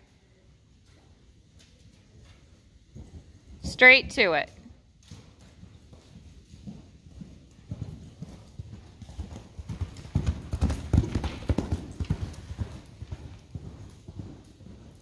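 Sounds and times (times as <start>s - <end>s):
horse hoofbeats on sand: 5.0s - 15.0s.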